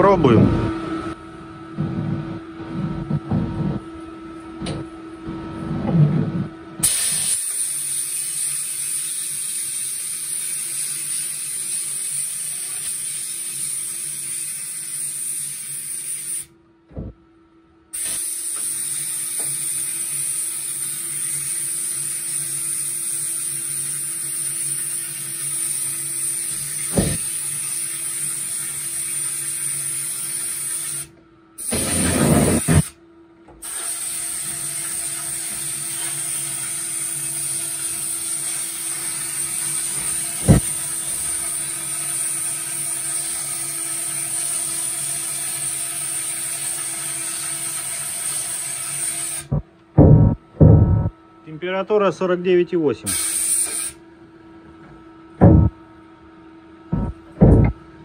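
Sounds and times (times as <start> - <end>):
spray nozzle hissing: 26.9 - 27.3, 31.6 - 32.9, 40.4 - 40.7
handling knocks: 27.0 - 27.2, 49.5 - 51.1, 55.4 - 55.7, 57.0 - 57.8.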